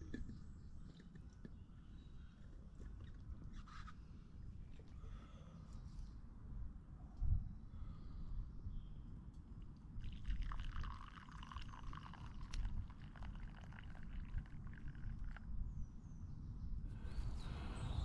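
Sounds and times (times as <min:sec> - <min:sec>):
coffee trickling into cup: 0:10.0 - 0:15.5.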